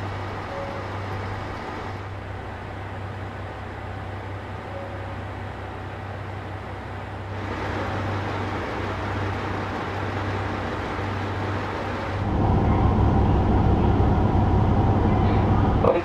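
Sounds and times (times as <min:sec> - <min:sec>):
diesel engine idling: 0:05.2 - 0:16.0.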